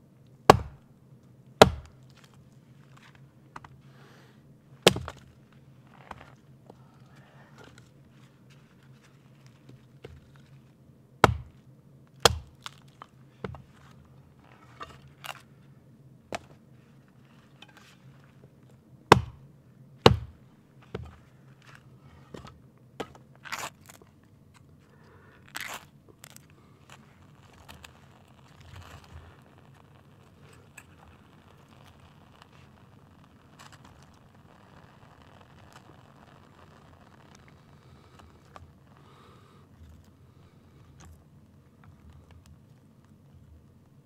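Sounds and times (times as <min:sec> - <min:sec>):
hatchet chopping wood: 0:00.5 - 0:00.8, 0:01.6 - 0:02.0, 0:04.8 - 0:05.3, 0:11.2 - 0:11.6, 0:12.2 - 0:12.7, 0:19.1 - 0:19.4, 0:20.0 - 0:21.2
wood splintering cracks: 0:01.6 - 0:02.4, 0:04.8 - 0:05.3, 0:12.2 - 0:13.0.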